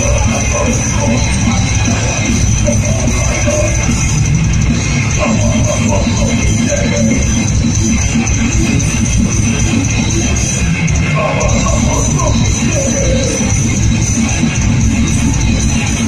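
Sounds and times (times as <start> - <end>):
live heavy metal band: 0.0 - 16.0.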